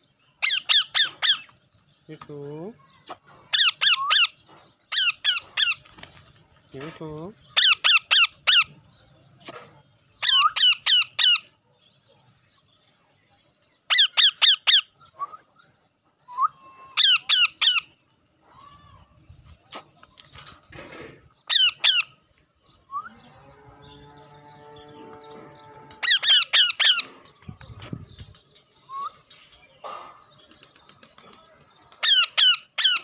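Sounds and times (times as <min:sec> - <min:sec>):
parakeet screeching: 0:16.4 - 0:17.9, 0:26.0 - 0:27.1.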